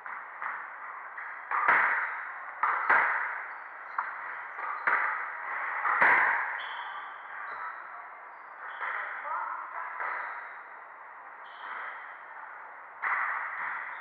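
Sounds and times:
ball slapping off court walls: 0.0 - 6.7
squash ball hit by rackets: 0.0 - 6.8, 13.0 - 14.0.

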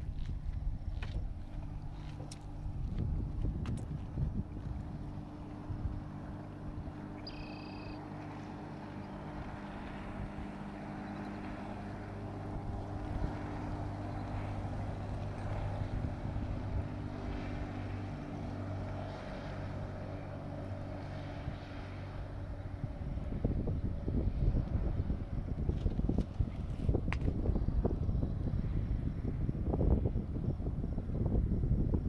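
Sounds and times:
speedboat engine: 0.0 - 31.9
high-pitched chirp: 7.2 - 8.0.

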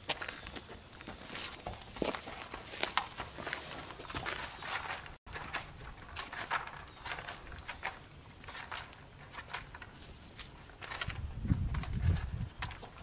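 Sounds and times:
low wind rumble: 11.0 - 12.8.

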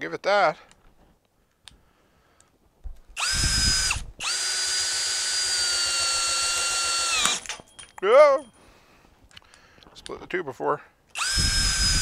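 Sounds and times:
cordless drill driving bolt into wood: 3.1 - 7.6, 11.1 - 12.0.

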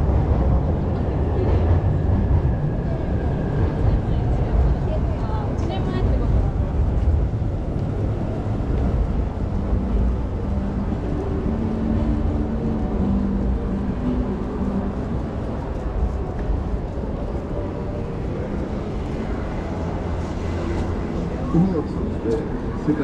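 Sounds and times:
road traffic rumble: 0.0 - 23.0
vehicle engine drone: 0.0 - 23.0.

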